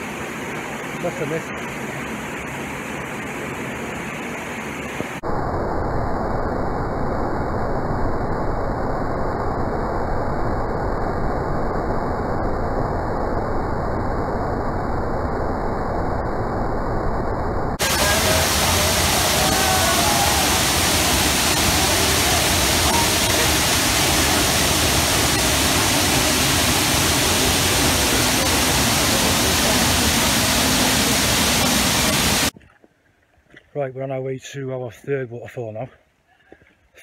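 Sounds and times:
waterfall rushing: 17.8s - 32.5s.

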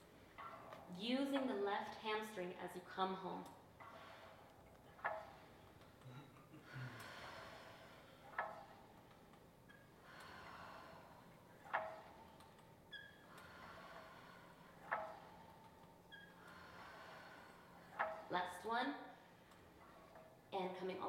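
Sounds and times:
exercise machine carriage sliding: 0.0s - 1.6s, 3.8s - 5.8s, 6.7s - 20.4s
person breathing softly: 6.6s - 8.3s, 10.0s - 11.5s, 13.3s - 15.6s, 16.4s - 18.0s.

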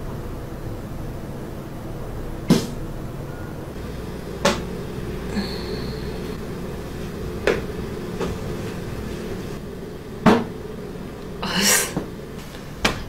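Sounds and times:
breathy rush: 3.8s - 9.6s.

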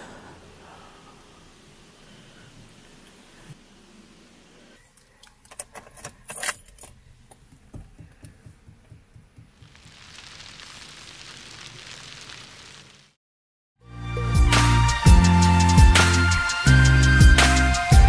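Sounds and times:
steady hiss: 0.0s - 4.8s, 9.5s - 13.2s
low evenly spaced thuds: 7.5s - 9.7s.

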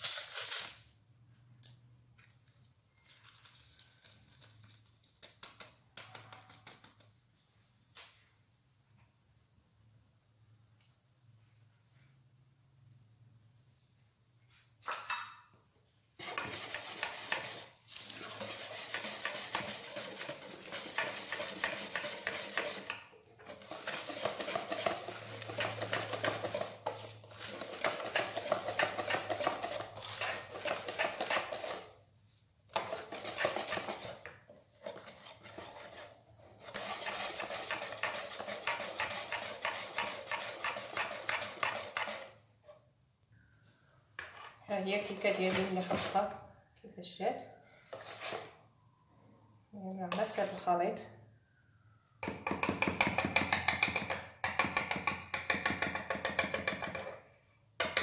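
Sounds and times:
wire whisk beating batter in bowl: 16.2s - 32.0s, 32.7s - 42.4s.

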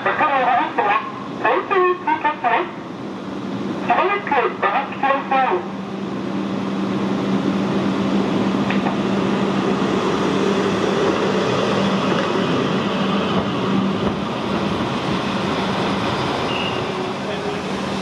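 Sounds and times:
train wheels rolling on rails: 6.2s - 18.0s.

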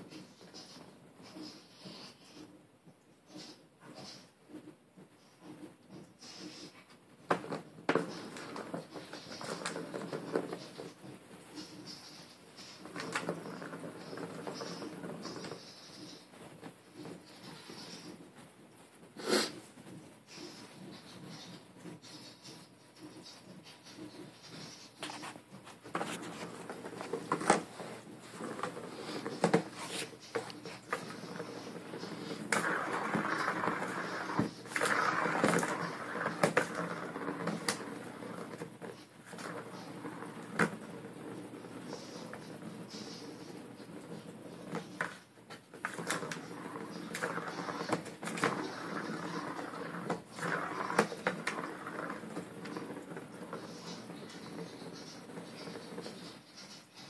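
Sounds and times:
plastic ball rolling and rattling: 6.9s - 18.4s, 24.1s - 57.0s.

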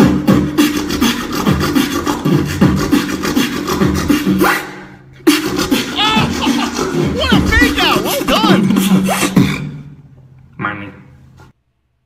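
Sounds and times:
person beatboxing: 0.0s - 4.6s, 5.3s - 9.6s.

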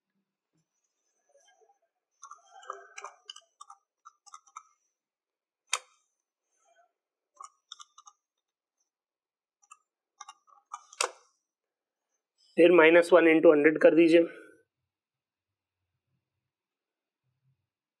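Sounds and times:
calculator keys clicking: 7.4s - 8.2s.

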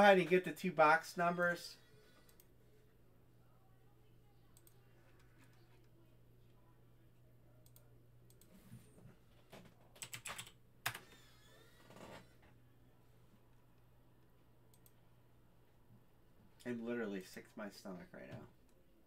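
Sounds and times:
computer keyboard keystrokes: 10.0s - 11.0s.

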